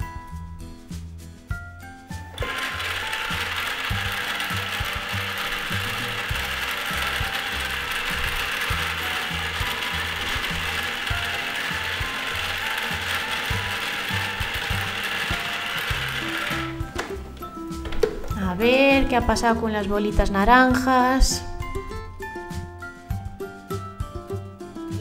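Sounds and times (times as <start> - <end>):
background music with bass line: 0.0 - 2.4, 5.0 - 25.0
toy microwave mechanical whirring: 2.3 - 17.1.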